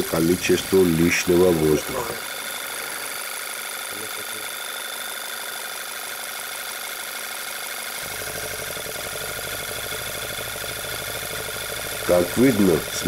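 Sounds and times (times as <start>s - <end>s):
car engine idling: 8.0s - 13.0s.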